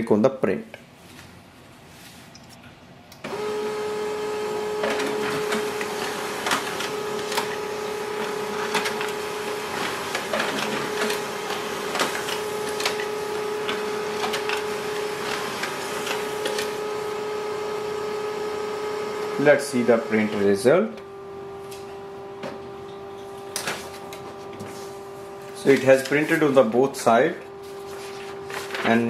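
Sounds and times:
printer paper feed clicks: 0:03.2 - 0:17.3, 0:19.0 - 0:27.1, 0:28.0 - 0:29.0
laser printer motor tone: 0:03.3 - 0:28.8.

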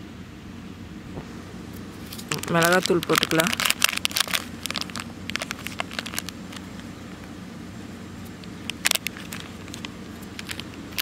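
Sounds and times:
fingers rustling in powder: 0:01.3 - 0:06.9
plastic packet crinkling: 0:02.0 - 0:06.9, 0:08.6 - 0:11.0.

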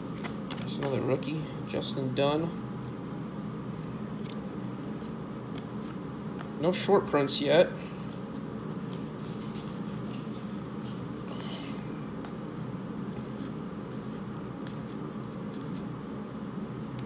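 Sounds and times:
cards sliding and ticking: 0:00.0 - 0:01.0, 0:04.2 - 0:06.6, 0:08.0 - 0:11.6, 0:12.2 - 0:15.9
steady low hum: 0:00.0 - 0:17.0.

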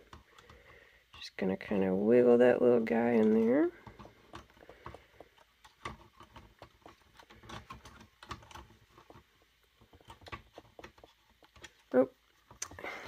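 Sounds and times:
small metal clicks and rattles: 0:02.9 - 0:12.8.

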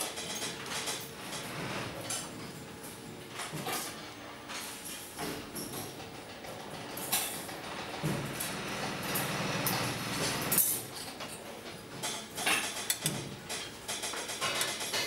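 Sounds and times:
metal parts clicking on bench: 0:09.6 - 0:15.0.

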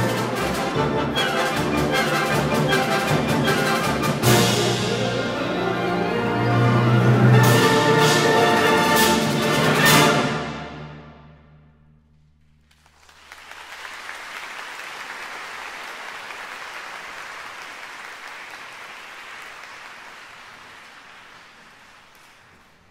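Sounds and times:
audience applause: 0:12.6 - 0:22.9.

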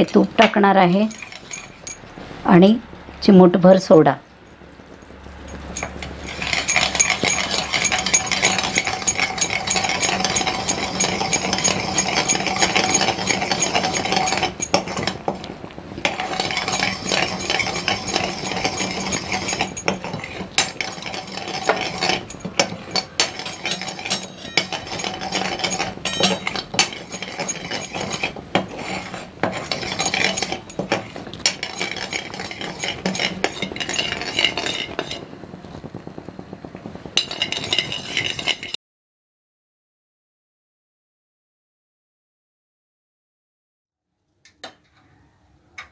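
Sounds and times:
spoon scraping metal pan: 0:00.0 - 0:02.0, 0:05.5 - 0:35.3, 0:37.2 - 0:38.8.

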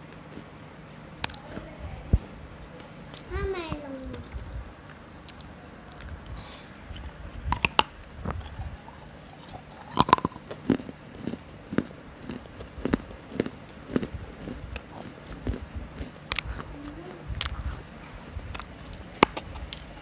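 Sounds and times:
biting and chewing: 0:01.2 - 0:01.7, 0:03.1 - 0:04.6, 0:05.2 - 0:20.0
wet mouth clicks: 0:05.2 - 0:06.3, 0:07.4 - 0:15.7, 0:16.3 - 0:16.7, 0:17.3 - 0:17.7, 0:18.5 - 0:19.9.

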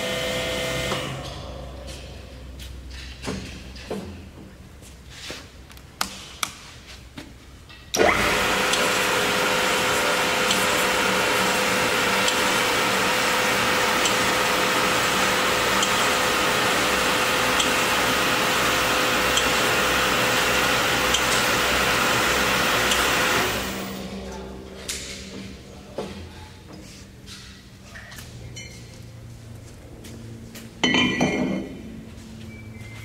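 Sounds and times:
band saw running: 0:00.0 - 0:01.3, 0:08.0 - 0:24.1.

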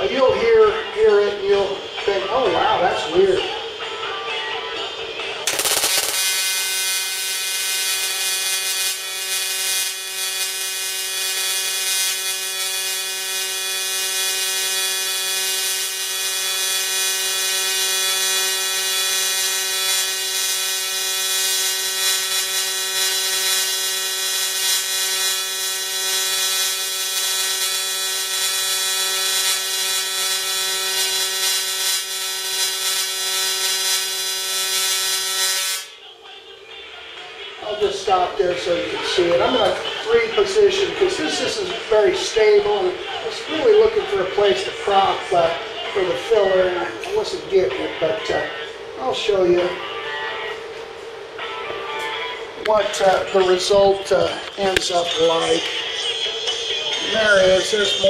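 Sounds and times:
welding arc buzzing: 0:05.4 - 0:36.0.

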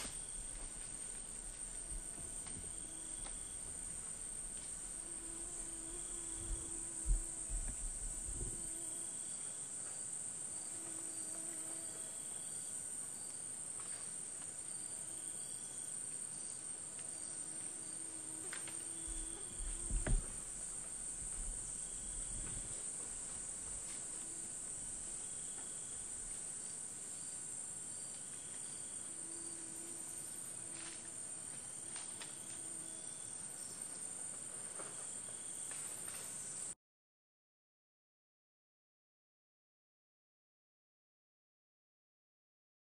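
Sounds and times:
low thumps: 0:00.0 - 0:08.7, 0:19.0 - 0:24.7
insect chorus buzzing: 0:00.0 - 0:36.8.

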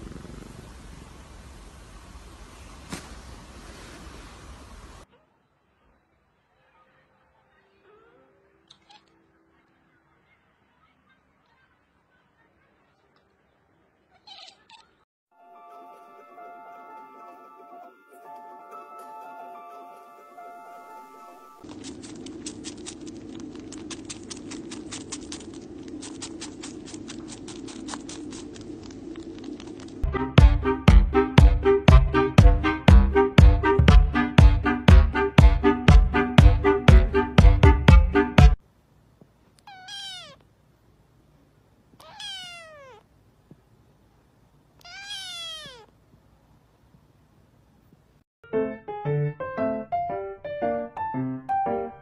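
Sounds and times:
kitten meowing: 0:14.2 - 0:14.9, 0:39.6 - 0:40.4, 0:42.0 - 0:43.1, 0:44.8 - 0:45.9
kitten suckling wet clicks: 0:21.6 - 0:30.0.

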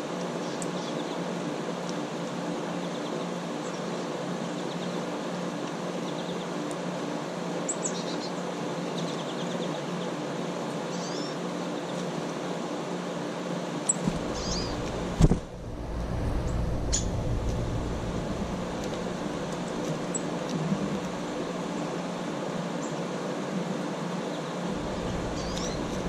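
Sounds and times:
air conditioner unit humming: 0:00.0 - 0:26.0
faint bird chirps: 0:10.9 - 0:12.0, 0:13.9 - 0:14.8, 0:25.0 - 0:26.0.

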